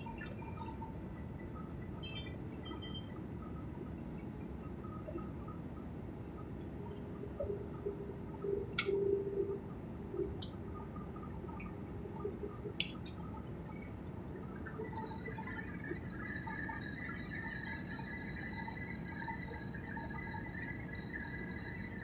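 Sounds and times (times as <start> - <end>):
faint sharp clicks: 8.7 - 9.0.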